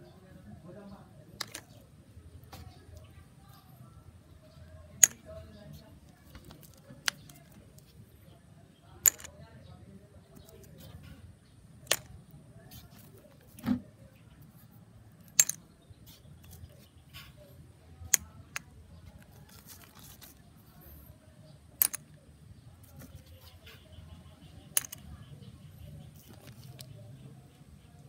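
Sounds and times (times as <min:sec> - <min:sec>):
coins clinking into plastic cup: 0:01.4 - 0:01.8, 0:09.0 - 0:09.3, 0:15.3 - 0:15.7, 0:21.8 - 0:22.2, 0:24.7 - 0:25.1.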